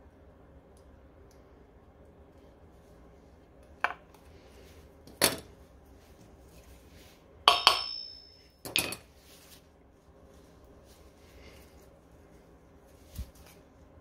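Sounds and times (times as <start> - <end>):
metal tool knocking on metal: 7.5 - 8.9.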